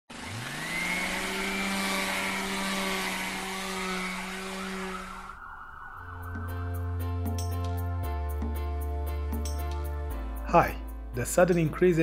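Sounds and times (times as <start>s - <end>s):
rising motor-like hum: 0.1s - 7.1s.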